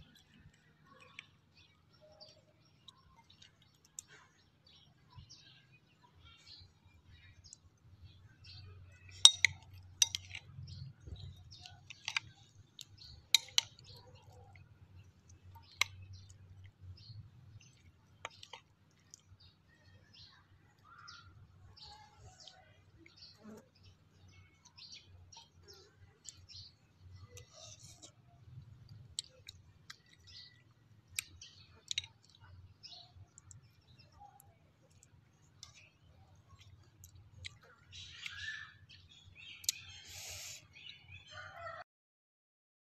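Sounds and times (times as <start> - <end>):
chewing: 0.0 - 4.5, 9.0 - 19.6, 24.6 - 38.5
spoon clicking against glass bowl: 9.2 - 10.4, 13.3 - 13.8.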